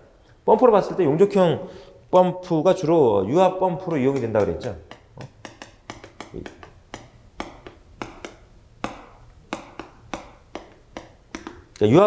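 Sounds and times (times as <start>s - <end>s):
chalk tapping and scratching: 3.9s - 11.7s.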